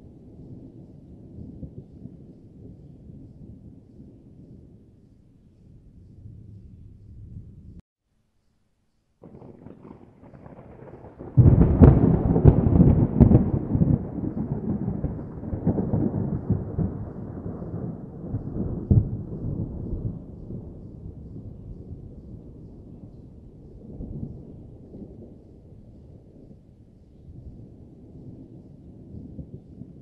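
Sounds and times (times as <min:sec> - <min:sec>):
thunder clap and rumble: 0:09.2 - 0:26.6.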